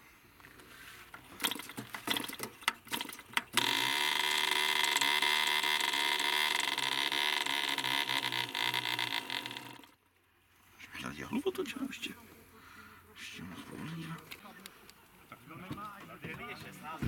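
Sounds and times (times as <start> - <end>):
small engine buzzing: 1.4 - 10.0.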